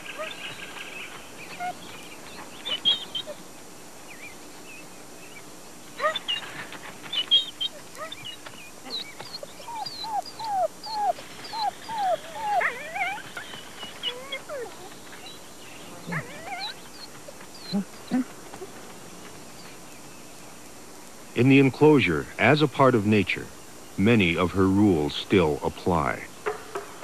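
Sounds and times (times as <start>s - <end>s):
wolves whimpering: 0.0s - 3.4s, 6.0s - 19.8s.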